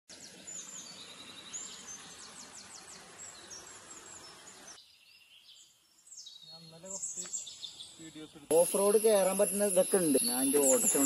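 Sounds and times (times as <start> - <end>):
birds chirping: 0.1 - 11.0.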